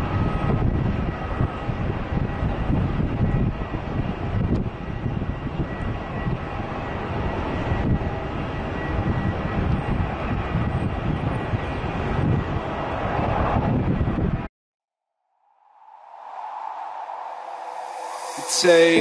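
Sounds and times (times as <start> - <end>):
jet engines rumbling: 15.6 - 19.0
faint high tone: 16.6 - 19.0.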